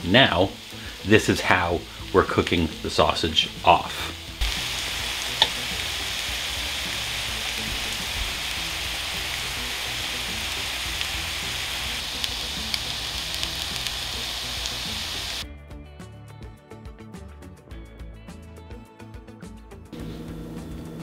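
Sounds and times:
sausages sizzling in a skillet: 0:00.0 - 0:15.4.

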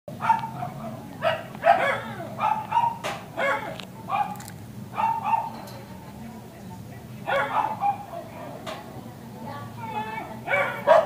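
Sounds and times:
dog barking: 0:00.2 - 0:05.6, 0:07.3 - 0:08.6, 0:10.4 - 0:11.0.

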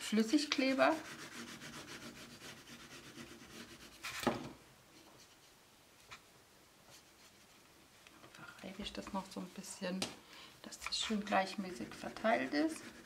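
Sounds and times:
fingertips rubbing paper: 0:00.7 - 0:04.2, 0:11.0 - 0:13.0.

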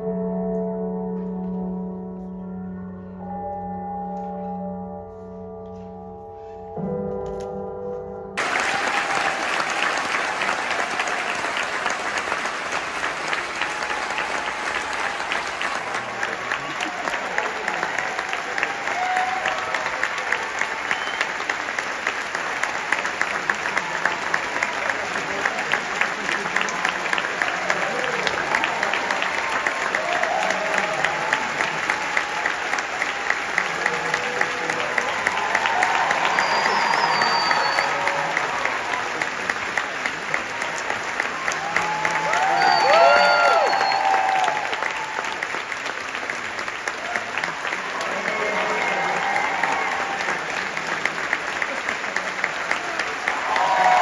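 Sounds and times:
music sustained chord: 0:00.0 - 0:08.4
audience applause: 0:08.4 - 0:54.0.

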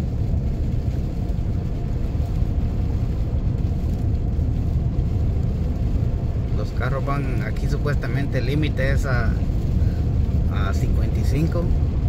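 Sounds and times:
car cabin road rumble: 0:00.0 - 0:12.0.

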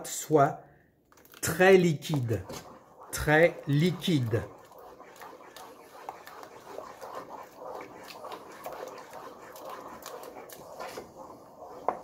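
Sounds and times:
utensil scraping a pot: 0:01.6 - 0:12.0.

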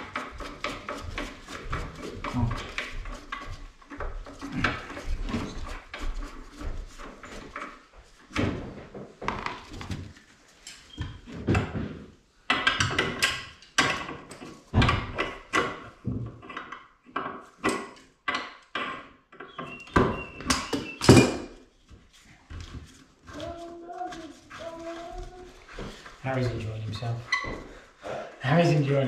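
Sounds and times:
knocks and clunks on ceramic: 0:11.4 - 0:21.6.

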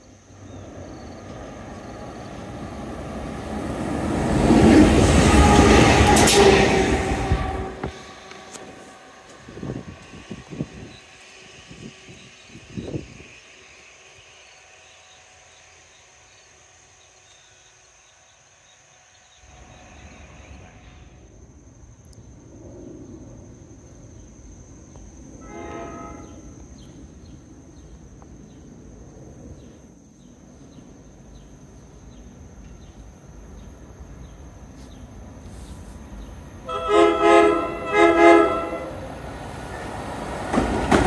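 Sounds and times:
locomotive rumble on track: 0:00.1 - 0:21.6, 0:29.6 - 0:41.0
locomotive horn blast: 0:04.6 - 0:09.0, 0:25.4 - 0:26.5, 0:36.6 - 0:39.1.

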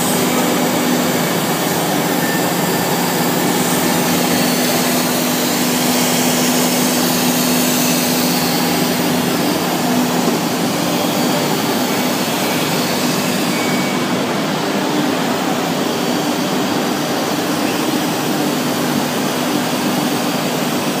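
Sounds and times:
cnc router engraving metal: 0:00.0 - 0:21.0.

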